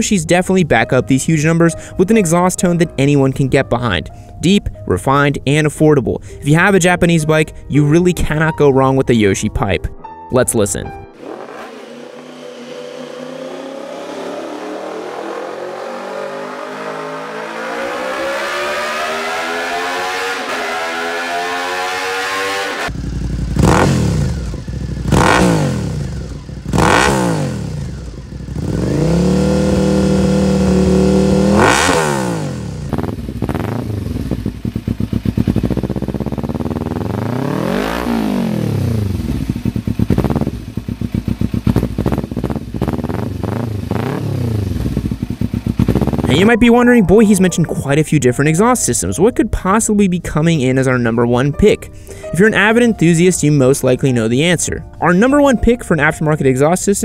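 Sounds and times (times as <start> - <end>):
motorcycle engine revving: 11.1 - 46.5
motorcycle accelerating: 11.1 - 47.5.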